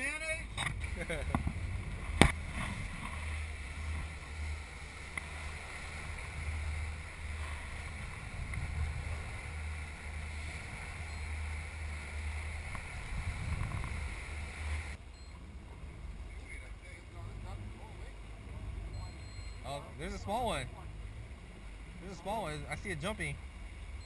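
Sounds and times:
boat engine drone: 0.0s - 24.0s
churning wake water: 0.0s - 24.0s
wind rushing: 12.2s - 15.0s.

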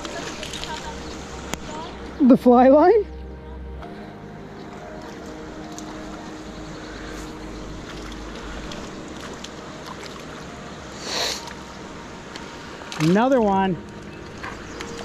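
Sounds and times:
river flowing over rocks: 0.0s - 2.8s, 3.8s - 15.0s.

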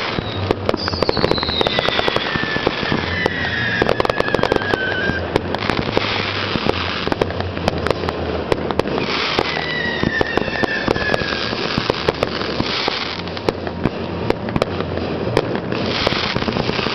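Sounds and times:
falling firework whistle: 0.0s - 7.2s, 8.8s - 13.5s, 15.7s - 16.9s
firework bursts and bangs: 0.0s - 16.9s.

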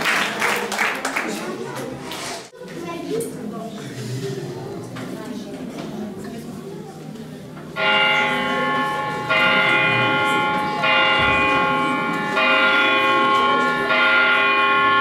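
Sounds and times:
church bell tolling: 7.8s - 15.0s.

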